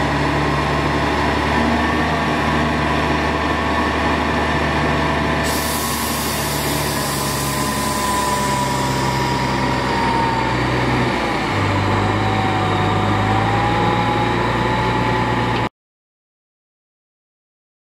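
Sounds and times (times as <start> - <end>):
hydraulic whine: 3.5 - 15.7.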